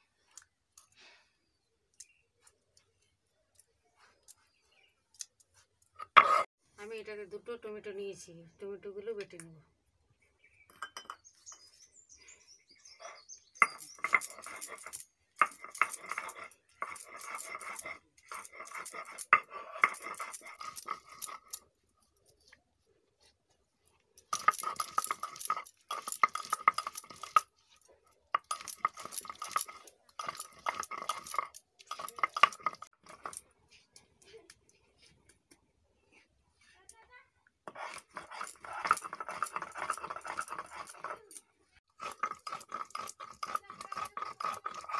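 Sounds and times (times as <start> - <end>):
stone grinding on stone: 5.8 - 6.5, 12.9 - 21.7, 24.2 - 33.9, 37.6 - 44.9.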